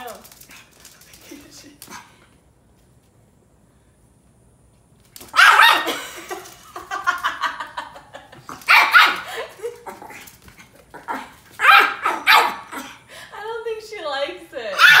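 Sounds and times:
small dog barking: 5.3 - 6.0, 8.7 - 9.3, 11.6 - 12.9, 14.7 - 15.0.

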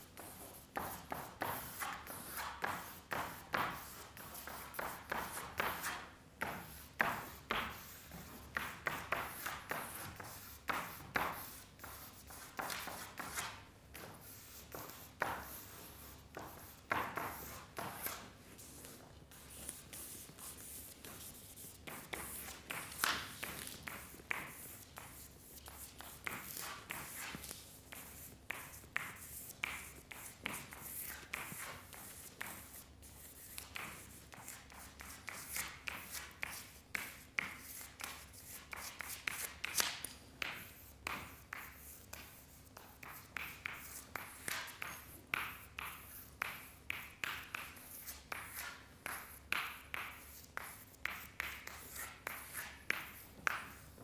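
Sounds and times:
drawing strokes scratching paper: 6.6 - 36.2.

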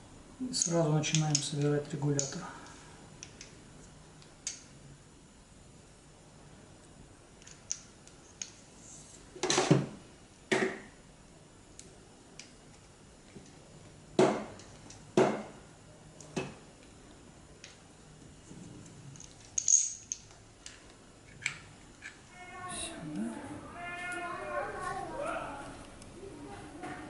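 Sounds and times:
metal clicks and clinks: 19.2 - 20.4.

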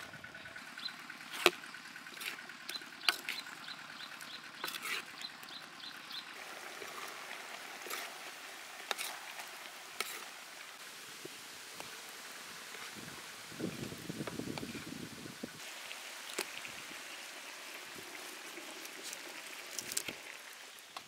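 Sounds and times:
bird chirping: 2.6 - 6.4
sauce bubbling in a wok: 6.4 - 14.1, 15.6 - 20.9.

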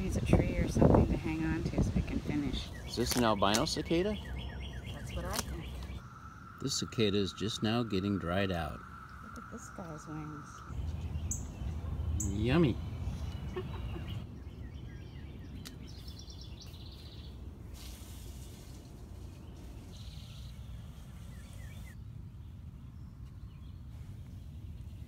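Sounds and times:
bird chirps: 2.3 - 17.5, 19.2 - 25.0.

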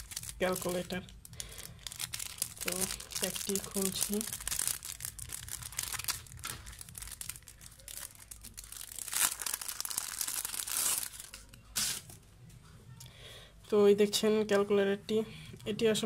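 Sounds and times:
plastic wrapping crinkling: 0.0 - 12.2.

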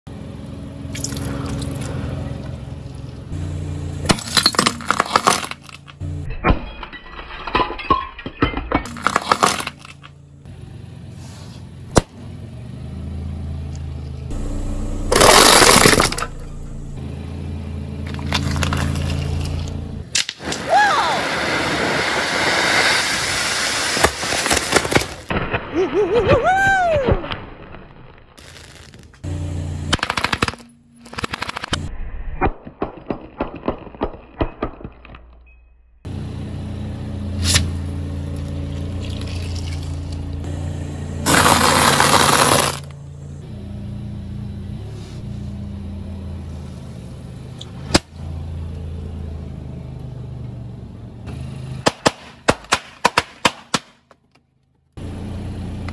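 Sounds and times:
car engine running: 0.1 - 6.4, 8.8 - 20.1, 29.2 - 31.9, 36.0 - 52.0, 54.6 - 55.9
plate shattering under tyre: 4.0 - 10.1, 15.1 - 16.6, 23.9 - 29.0, 41.3 - 43.0
fountain fireworks hissing: 20.5 - 24.7, 41.3 - 42.8.

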